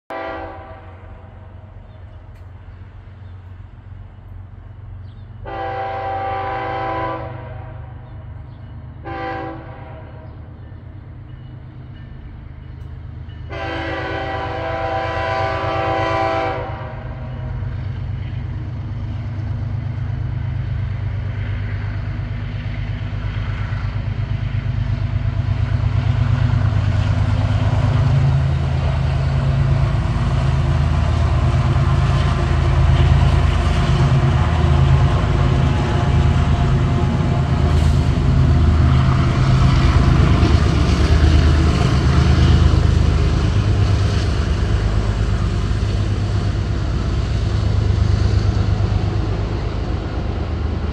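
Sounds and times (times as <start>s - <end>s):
train air horn blasts: 0.1s - 1.7s, 5.4s - 8.0s, 9.0s - 10.4s, 13.5s - 17.5s
diesel locomotive rumble: 0.1s - 50.9s.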